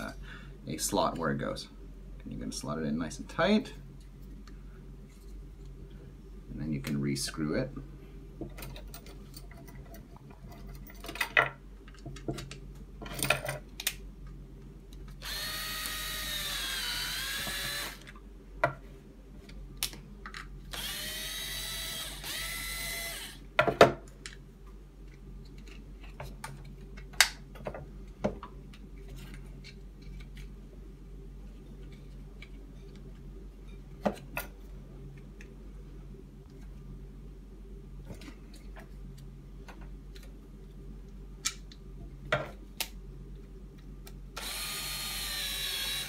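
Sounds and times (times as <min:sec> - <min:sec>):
cordless drill whining: 0:15.2 - 0:18.1, 0:20.7 - 0:23.4, 0:44.4 - 0:46.0.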